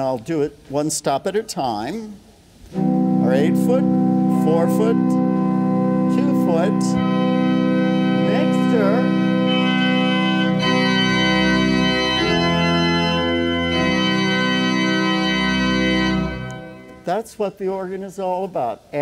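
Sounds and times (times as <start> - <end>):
pipe organ sustained chords: 2.7 - 17.8.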